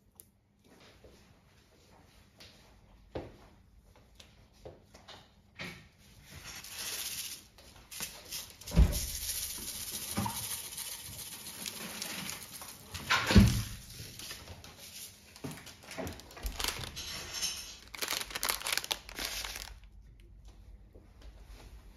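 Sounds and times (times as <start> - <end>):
plastic wrapper crinkling: 6.4 - 20.0
sprinkles rattling from shaker jar: 6.5 - 13.0.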